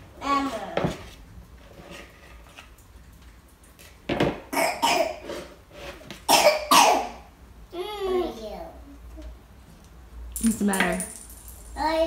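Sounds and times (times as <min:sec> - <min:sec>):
person coughing: 0:06.3 - 0:07.1.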